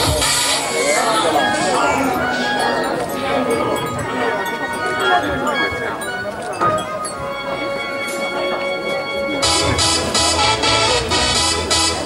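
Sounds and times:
background music with long held notes: 7.1s - 12.0s.

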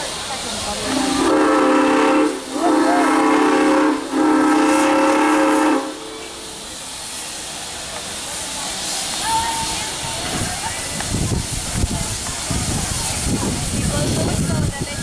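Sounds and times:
steam hissing: 0.0s - 15.0s
steam whistle blasts: 0.8s - 6.6s.

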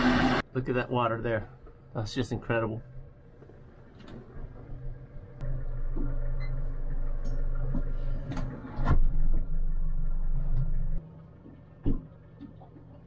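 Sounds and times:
boat outboard engine humming: 4.6s - 8.4s.

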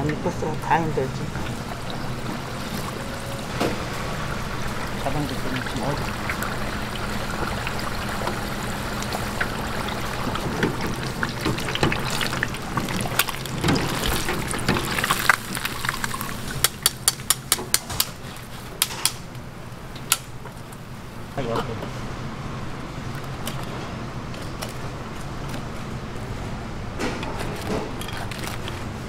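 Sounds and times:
oil sizzling in a deep fryer: 0.7s - 18.8s
metal skimmer tapping fryer: 4.8s - 18.2s.

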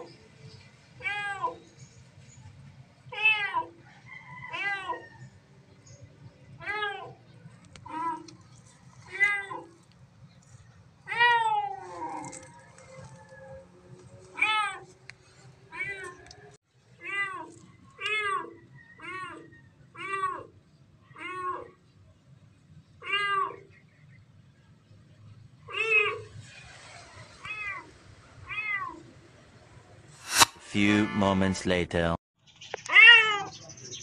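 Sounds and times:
kitten meowing: 32.9s - 33.5s.

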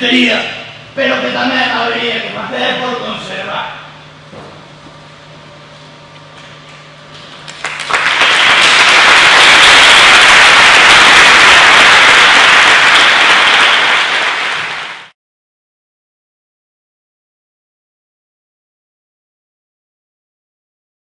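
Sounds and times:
audience applause: 7.5s - 15.1s.

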